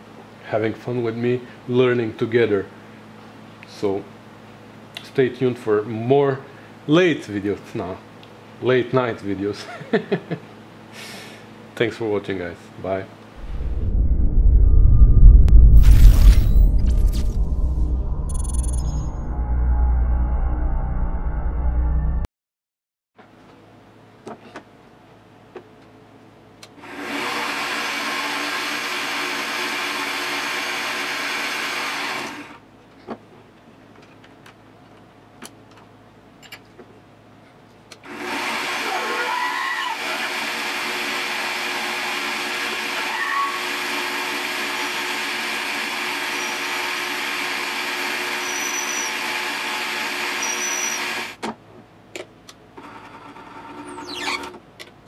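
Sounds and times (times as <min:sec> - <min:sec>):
drill squealing in cut: 0:41.6 - 0:45.1, 0:45.9 - 0:51.4, 0:53.7 - 0:54.5
lathe drilling brass: 0:43.6 - 0:51.3.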